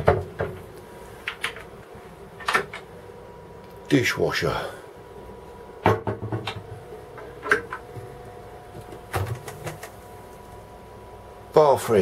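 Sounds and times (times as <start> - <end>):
faint steady hum: 0.0 - 12.0
cabinet door knock: 5.8 - 6.5.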